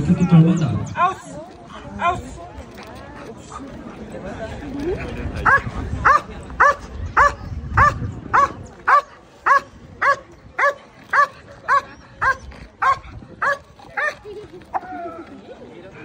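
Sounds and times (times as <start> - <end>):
dog barking: 5.5 - 13.6.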